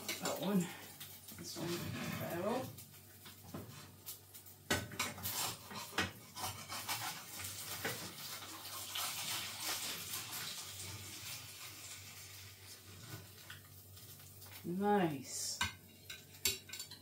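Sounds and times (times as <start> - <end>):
fat sizzling in a pan: 0.0 - 17.0
fish slice scraping a frying pan: 5.0 - 11.9.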